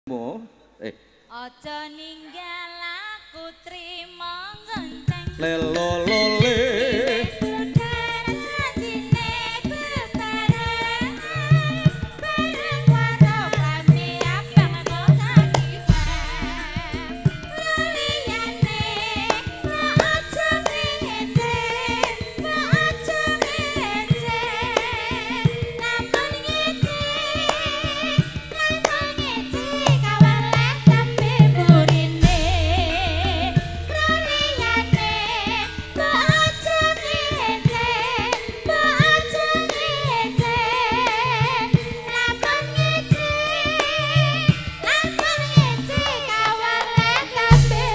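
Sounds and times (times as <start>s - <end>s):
person singing with vibrato: 0.1s - 47.9s
hand drum strokes: 4.8s - 47.9s
gamelan ensemble playing: 29.8s - 39.5s.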